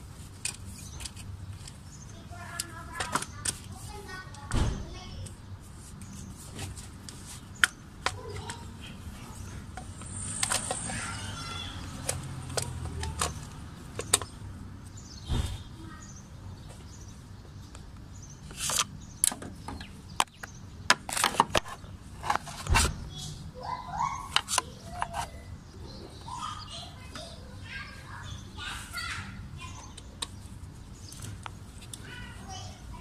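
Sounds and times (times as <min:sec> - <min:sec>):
engine parts clicking and knocking: 0:11.9 - 0:14.4.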